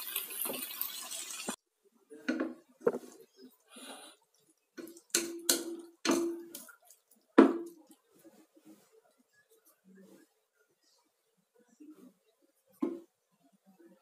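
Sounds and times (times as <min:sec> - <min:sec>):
spatula knocking on metal pot: 0:04.8 - 0:06.6.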